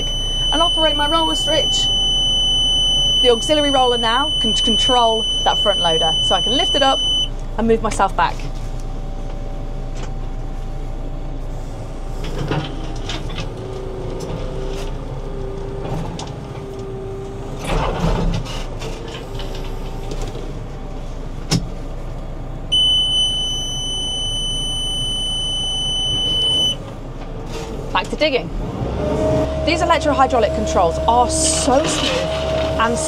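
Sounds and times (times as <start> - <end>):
warning beeper high tone: 0.0 - 7.3, 22.7 - 26.8
backhoe engine running: 0.0 - 33.0.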